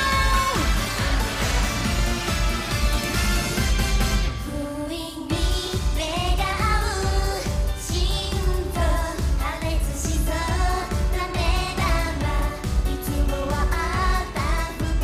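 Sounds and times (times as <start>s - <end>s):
woman singing into microphone: 0.0s - 0.8s, 4.5s - 15.0s
upbeat pop backing track: 0.0s - 4.6s, 5.3s - 15.0s.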